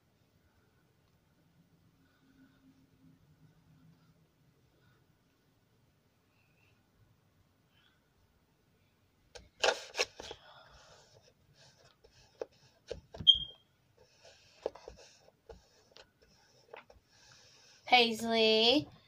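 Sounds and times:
slime squeak: 0:13.2 - 0:13.6.

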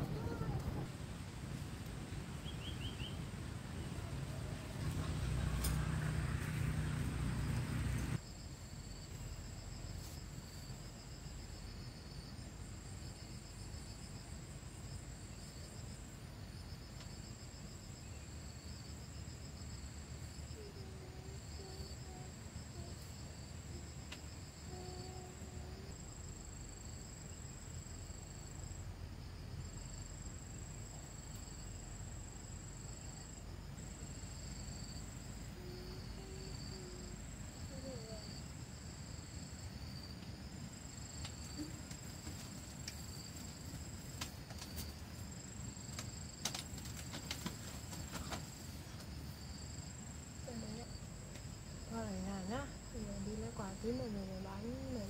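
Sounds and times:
low background rumble: 0:00.0 - 0:08.7
insects chirring: 0:06.8 - 0:55.0.

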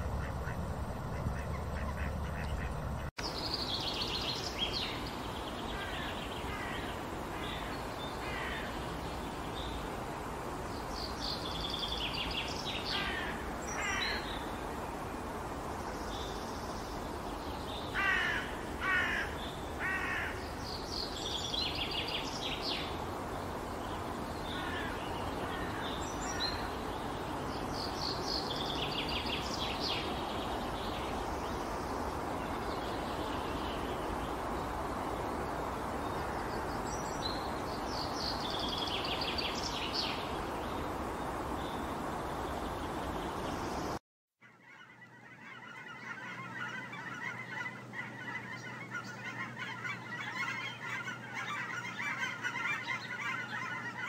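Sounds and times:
ducks quacking: 0:00.0 - 0:03.1
birds calling: 0:00.0 - 0:09.8, 0:11.0 - 0:54.0.

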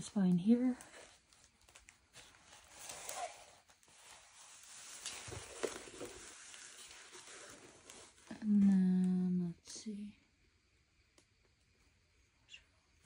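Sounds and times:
canvas and plastic film rustling: 0:00.0 - 0:09.3.

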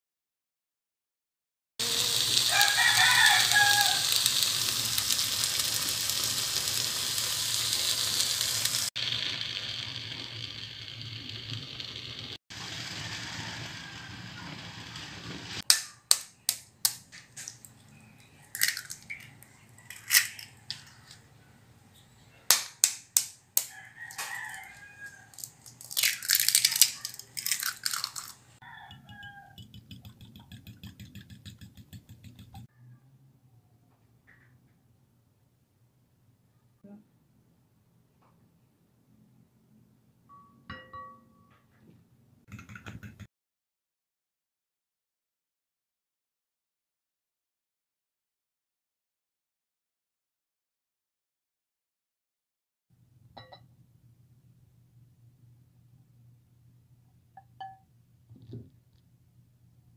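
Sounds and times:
shrimp sizzling in oil: 0:01.8 - 0:15.6
eggs cracked on glass bowl: 0:15.7 - 0:17.7, 0:18.5 - 0:20.8, 0:22.5 - 0:32.2
eggs being beaten: 0:22.5 - 0:32.7.

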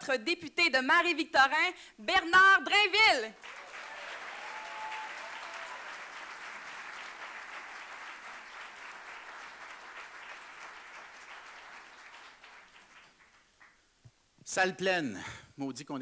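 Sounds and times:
audience applauding: 0:03.4 - 0:13.8.

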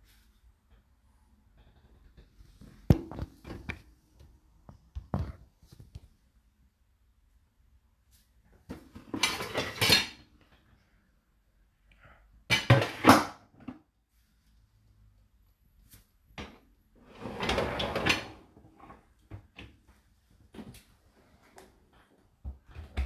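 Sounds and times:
dishes clattering: 0:09.1 - 0:10.2.

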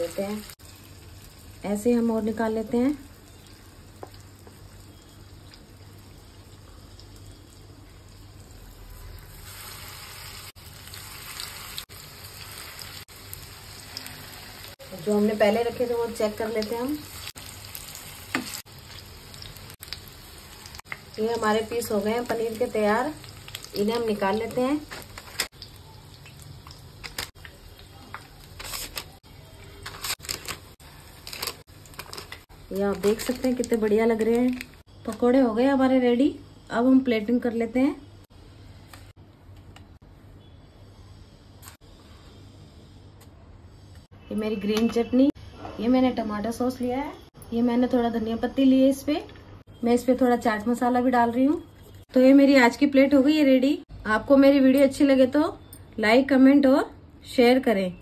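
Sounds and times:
food sizzling in hot oil: 0:00.0 - 0:29.2.

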